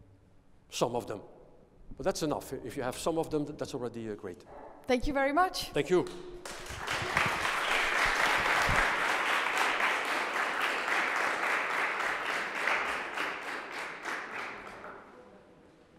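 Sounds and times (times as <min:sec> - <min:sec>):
audience applause: 0:06.4 - 0:15.0.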